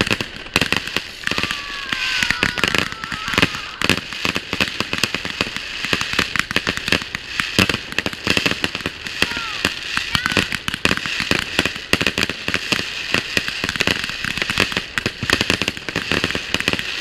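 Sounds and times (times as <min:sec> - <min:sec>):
fireworks bangs and crackling: 0:00.0 - 0:17.0
falling firework whistle: 0:01.1 - 0:05.1.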